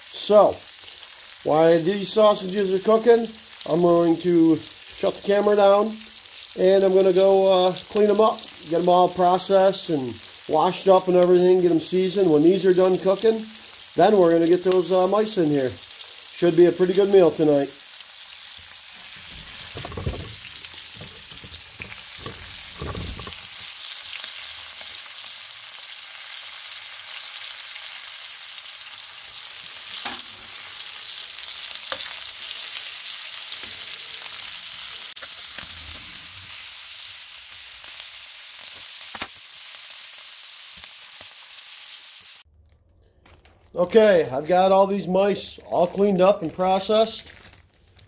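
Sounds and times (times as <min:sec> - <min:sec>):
sausages sizzling in a pan: 0:00.0 - 0:42.5
fat popping: 0:19.4 - 0:23.5.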